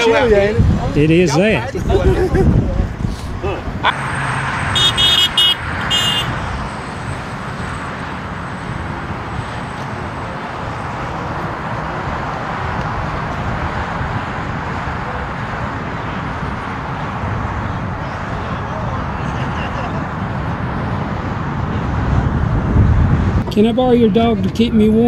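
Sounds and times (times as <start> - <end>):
wind buffeting microphone: 0.0 - 25.0
car horn toots: 3.8 - 6.5.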